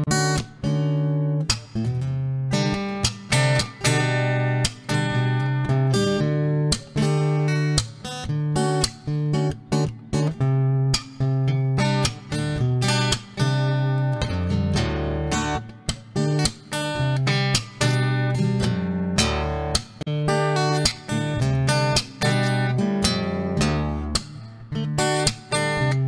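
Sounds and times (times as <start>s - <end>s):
plucked guitar notes: 0.0s - 26.0s.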